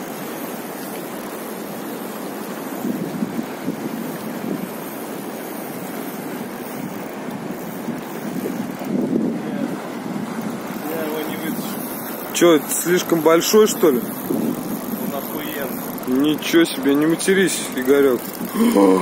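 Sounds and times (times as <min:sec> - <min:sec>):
turbulent river water rushing: 0:00.0 - 0:19.0
wind buffeting microphone: 0:02.8 - 0:04.9, 0:06.7 - 0:12.4, 0:13.8 - 0:16.4.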